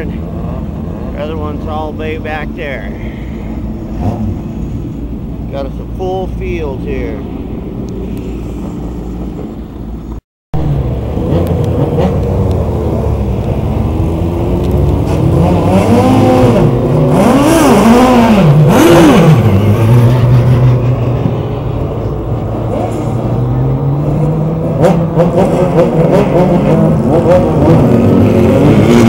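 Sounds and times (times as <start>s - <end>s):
race car engines idling: 0.0s - 10.2s, 19.4s - 28.2s.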